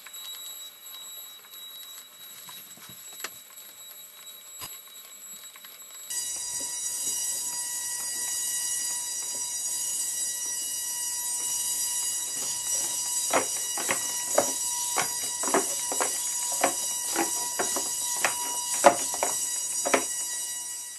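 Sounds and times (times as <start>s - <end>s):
robot feet tapping on wood: 12.3s - 20.2s.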